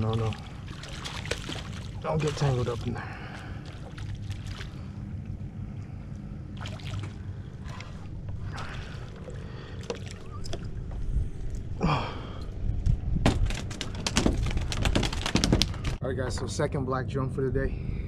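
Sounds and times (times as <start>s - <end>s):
fish splashing at water surface: 0.0s - 4.9s, 6.6s - 10.3s
low rumble of wind and water: 0.0s - 18.0s.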